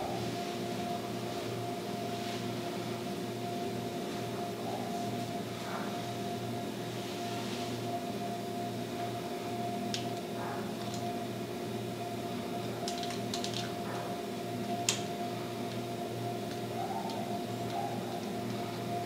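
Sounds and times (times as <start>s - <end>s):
frame drum low drone: 0.0s - 0.9s.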